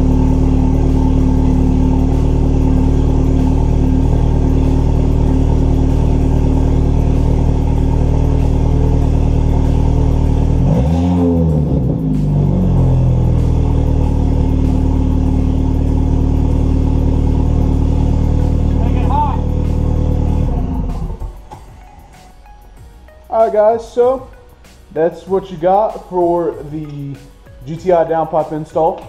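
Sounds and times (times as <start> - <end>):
engine revving: 0.0 - 21.6
car engine idling: 0.0 - 28.3.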